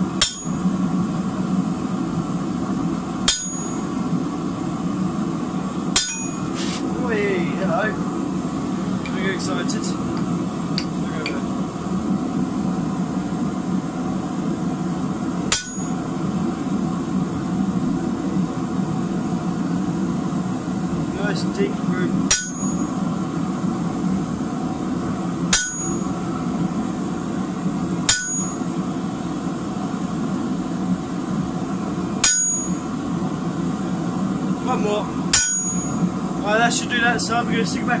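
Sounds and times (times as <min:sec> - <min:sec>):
hammer striking chisel on metal: 0:00.2 - 0:00.6, 0:03.3 - 0:03.9, 0:06.0 - 0:06.7, 0:15.5 - 0:16.0, 0:22.3 - 0:22.9, 0:25.5 - 0:26.1, 0:28.1 - 0:28.6, 0:32.2 - 0:32.8, 0:35.4 - 0:36.0.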